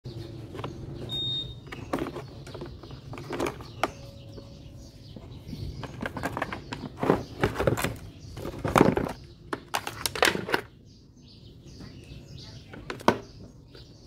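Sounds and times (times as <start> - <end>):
items knocking in plastic case: 1.6 - 4.6, 5.7 - 10.7.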